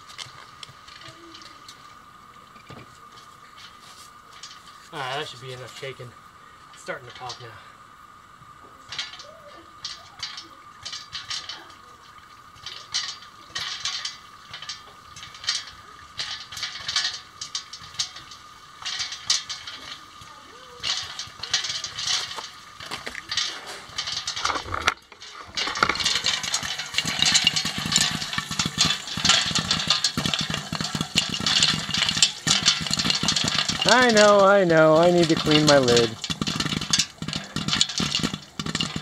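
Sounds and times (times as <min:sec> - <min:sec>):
popcorn popping in covered pot: 0:00.0 - 0:07.6, 0:08.3 - 0:39.0
kernels hitting lid: 0:08.9 - 0:11.7, 0:12.4 - 0:39.0.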